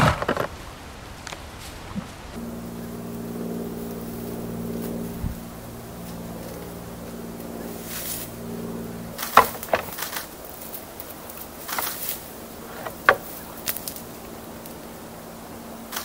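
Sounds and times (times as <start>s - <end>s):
antlers knocking together: 9.2s - 10.3s, 12.7s - 13.9s.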